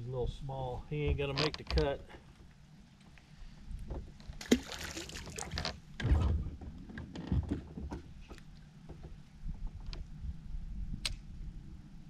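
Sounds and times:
fish splashing into water: 4.4 - 5.6.

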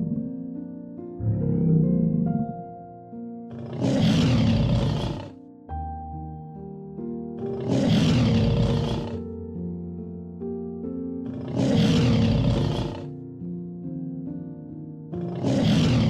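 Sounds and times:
light background music: 0.0 - 16.0
lion roaring: 1.3 - 2.5, 3.5 - 5.4, 7.4 - 9.2, 11.3 - 13.1, 15.2 - 16.0.

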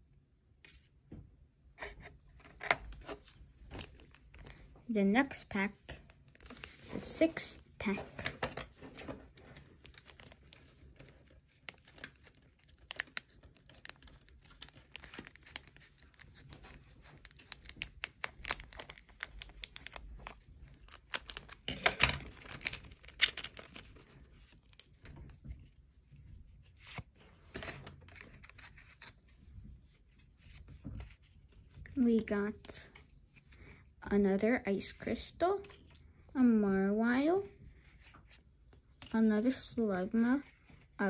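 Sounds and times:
foil wrapper crinkling: 9.6 - 24.9.

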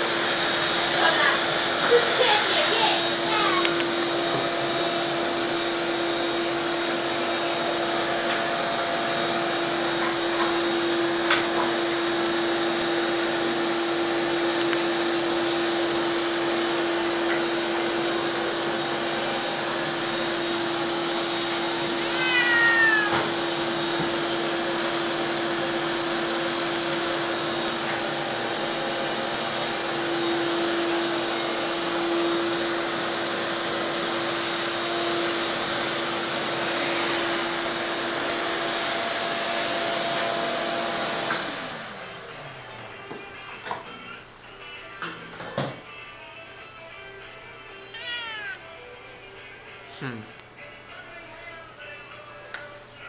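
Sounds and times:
steady mechanical hum: 0.0 - 53.0
cat meowing: 22.0 - 23.3, 47.9 - 48.7.

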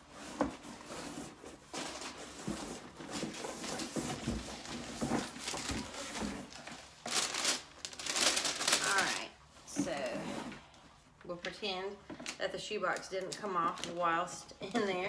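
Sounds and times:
cardboard rustling and scraping: 0.0 - 10.7.

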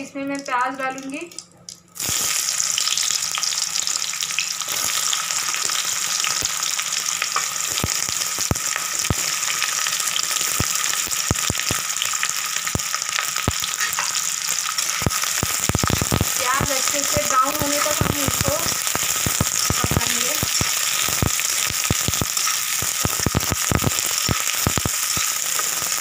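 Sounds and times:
onions sizzling in oil: 2.0 - 26.0
spoon scraping a pan: 13.8 - 14.2.

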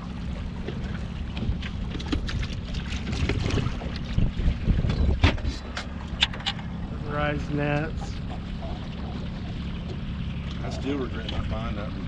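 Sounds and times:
wind rumbling on microphone: 0.0 - 12.0
knocks in aluminum boat: 0.6 - 6.6.

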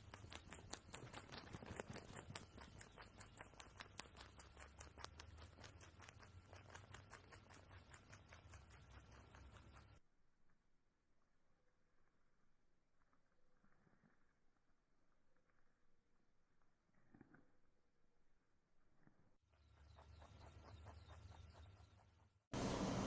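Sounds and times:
rabbit chewing crunchily: 0.0 - 10.0, 19.0 - 22.2.

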